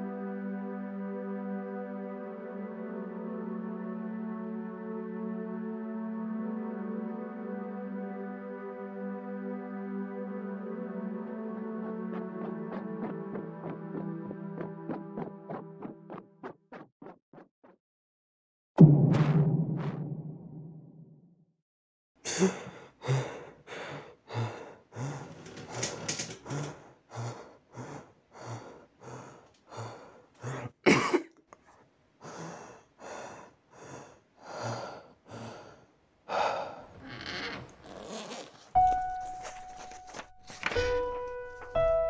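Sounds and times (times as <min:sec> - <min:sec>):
man breathing hard: 0:22.2 - 0:30.8, 0:32.2 - 0:37.0
soft piano note: 0:38.8 - 0:42.0.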